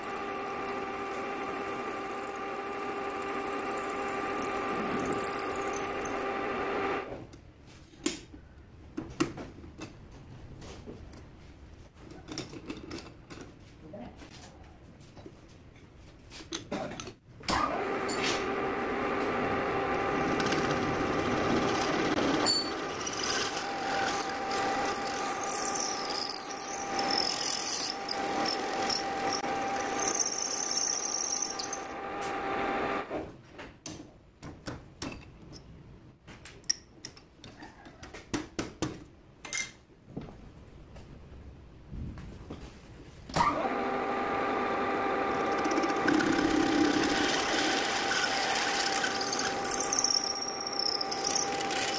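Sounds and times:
lathe drilling metal with whine: 0.0 - 7.0, 19.7 - 33.1, 43.5 - 51.9.

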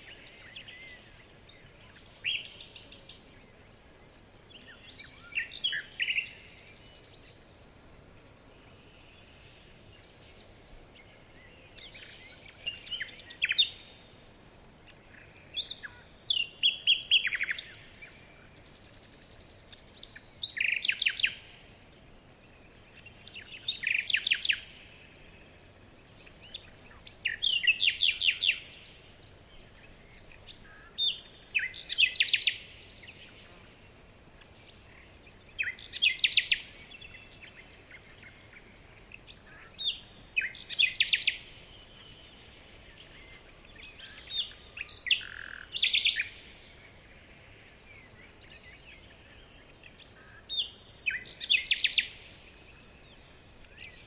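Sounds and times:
faint background hiss: 0.0 - 54.0
songbird trilling: 15.1 - 21.7, 22.8 - 33.2, 34.3 - 54.0.

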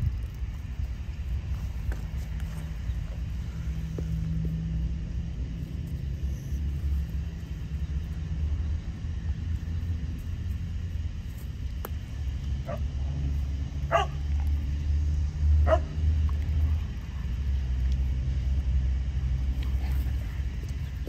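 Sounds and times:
low rumble: 0.0 - 21.0
dog barking: 12.6 - 12.8, 13.9 - 14.2, 15.6 - 15.9.

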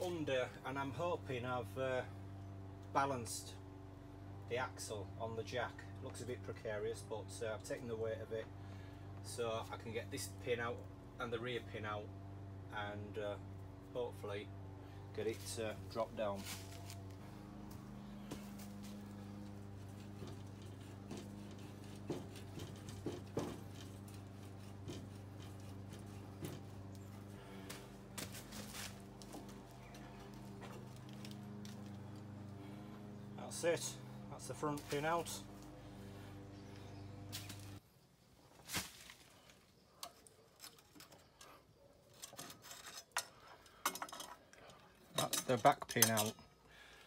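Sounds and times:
steady low hum: 0.0 - 37.8.

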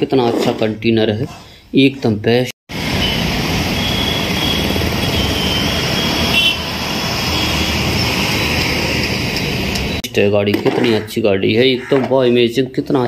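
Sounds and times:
street traffic engine rumble: 2.7 - 10.2.

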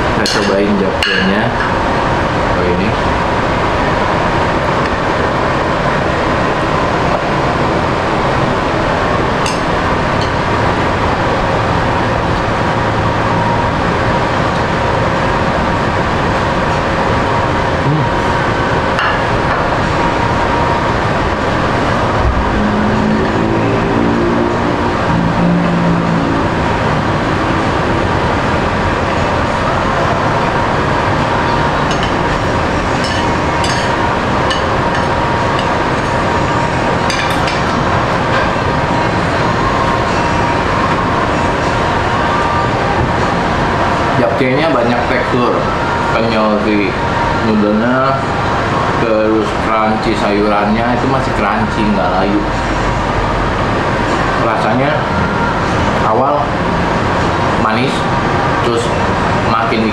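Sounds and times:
constant background hum: 0.0 - 59.9
muffled voice: 17.8 - 18.3.

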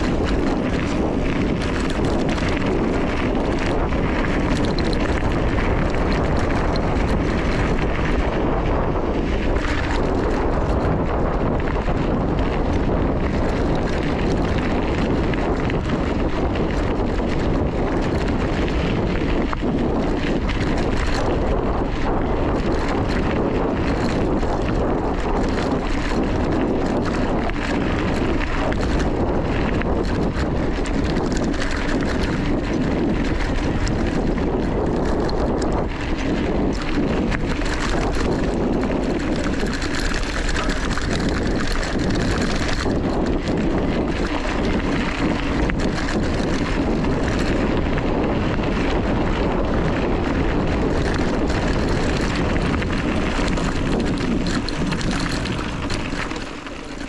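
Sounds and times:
bike rattles: 0.0 - 57.0
bike tyre rumble on gravel: 0.0 - 57.0
wind rush on microphone: 0.0 - 57.0.

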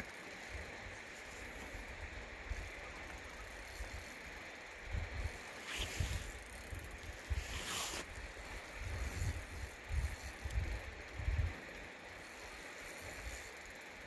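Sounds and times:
brief hiss: 7.4 - 8.1
wind buffeting microphone: 8.7 - 11.7.

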